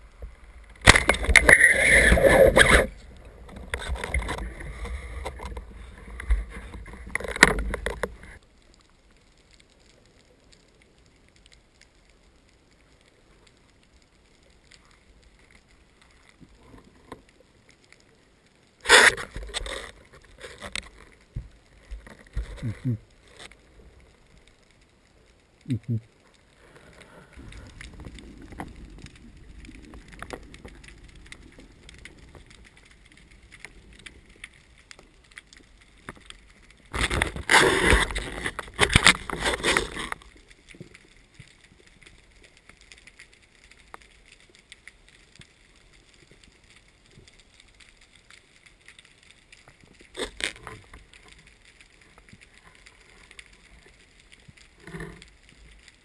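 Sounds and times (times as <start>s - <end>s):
muffled underwater rumble: 0.0s - 8.4s, 21.2s - 24.4s, 25.2s - 42.6s
rushing crackling burst: 0.0s - 17.1s, 18.1s - 56.0s.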